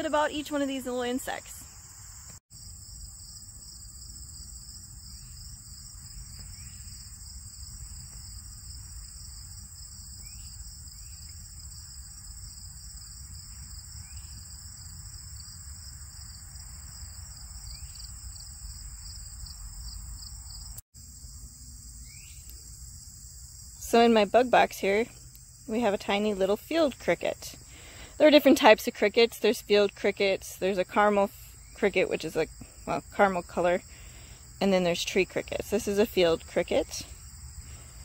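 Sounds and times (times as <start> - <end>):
insect chorus trilling: 0.0 - 26.8
short falling insect calls: 1.6 - 23.3.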